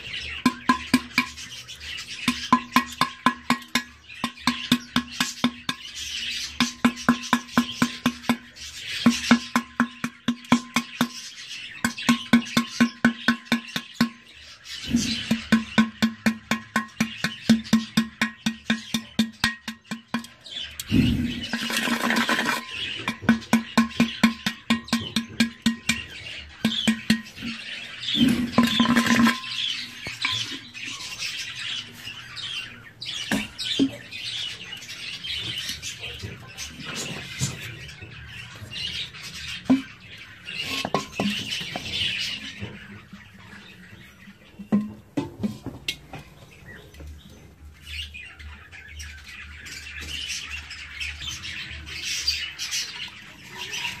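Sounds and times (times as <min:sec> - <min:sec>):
budgerigars chattering and chirping: 0:00.0 - 0:54.0
loud clatter: 0:21.4 - 0:23.5.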